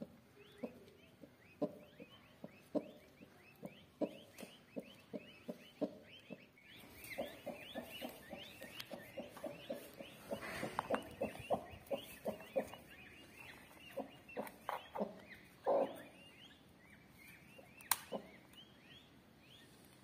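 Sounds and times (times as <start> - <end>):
hen clucking: 0.0 - 19.1
chicks peeping: 0.0 - 20.0
sharp click: 17.8 - 18.6.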